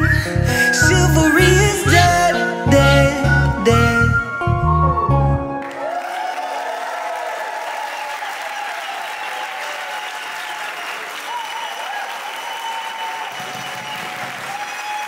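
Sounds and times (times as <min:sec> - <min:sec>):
audience applauding: 0:05.5 - 0:15.0.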